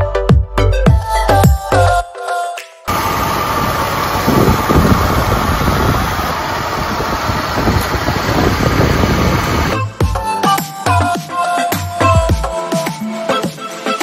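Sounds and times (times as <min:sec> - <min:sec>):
car engine idling: 0:02.9 - 0:09.8.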